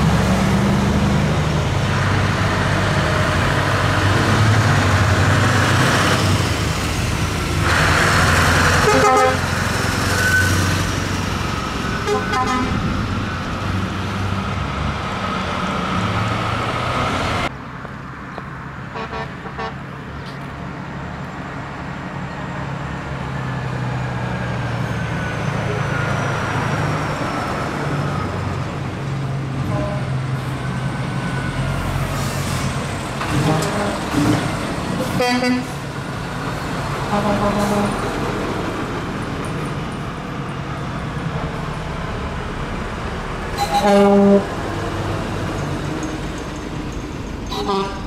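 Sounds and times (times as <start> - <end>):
diesel trucks driving past: 0.0 - 48.0
truck horn blasts: 8.8 - 9.5, 12.0 - 12.8, 19.0 - 19.8, 33.3 - 34.0, 35.1 - 35.8, 37.1 - 38.1, 43.6 - 44.5, 47.5 - 48.0.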